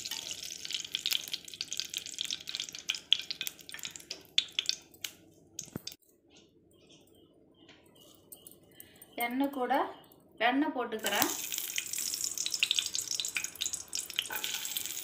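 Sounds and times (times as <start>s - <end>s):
oil sizzling and crackling in a pan: 0.0s - 6.0s, 11.0s - 15.0s.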